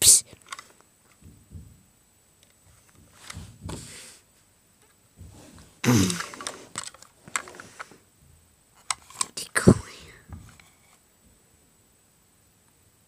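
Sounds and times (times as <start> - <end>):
handling toy and packaging: 0.3 - 1.2, 5.2 - 8.0, 8.8 - 11.0.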